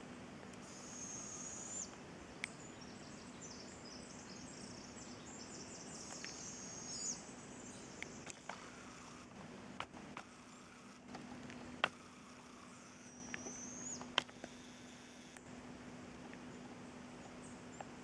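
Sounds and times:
faint outdoor ambience: 0.0s - 18.0s
high thin buzzing calls: 0.6s - 2.0s, 5.6s - 11.2s, 11.8s - 15.4s.

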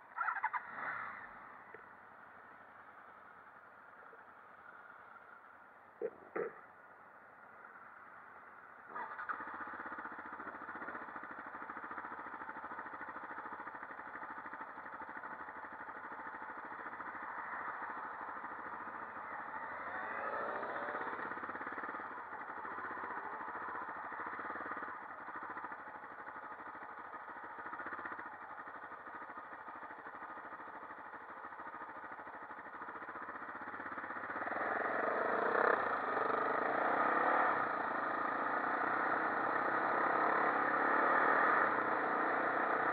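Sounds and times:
quad bike engine revving: 0.2s - 1.5s, 8.9s - 30.7s, 32.4s - 42.9s.

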